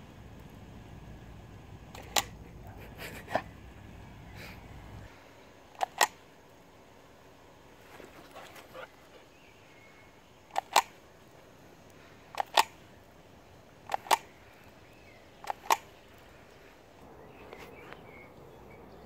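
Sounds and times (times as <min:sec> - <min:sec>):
camera shutter double clicks: 0:01.9 - 0:02.4, 0:05.8 - 0:06.2, 0:10.5 - 0:11.0, 0:12.3 - 0:12.8, 0:13.9 - 0:14.3, 0:15.4 - 0:16.0.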